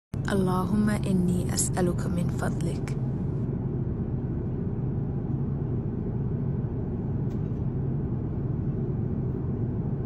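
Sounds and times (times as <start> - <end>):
airliner cabin rumble: 0.2 - 10.0.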